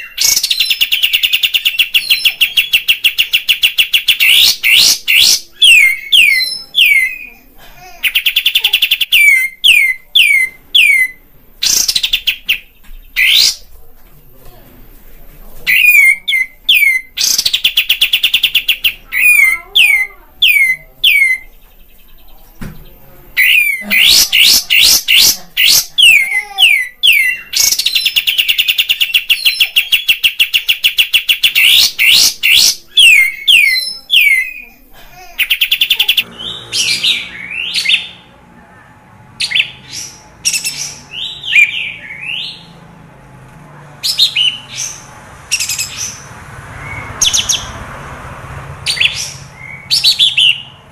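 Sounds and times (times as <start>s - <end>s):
bird chatter: 0.0s - 13.7s, 15.6s - 38.2s.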